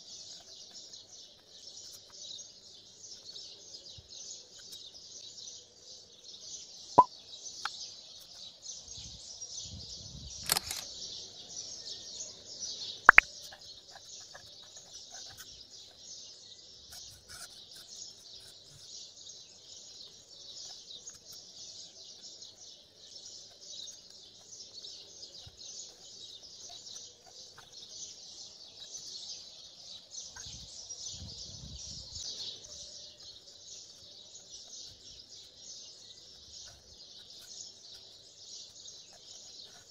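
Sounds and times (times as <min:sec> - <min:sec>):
birds chirping: 0:10.3 - 0:39.9
sharp clicks: 0:10.4 - 0:10.9.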